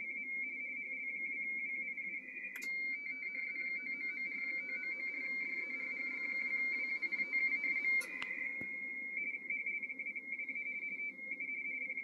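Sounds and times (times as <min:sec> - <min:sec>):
warbling data signal tone: 0:02.5 - 0:10.8.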